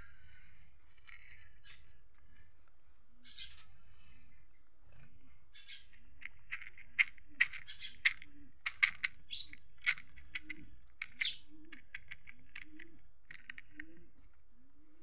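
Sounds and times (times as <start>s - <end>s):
small pieces clicking onto ground: 6.2s - 14.0s.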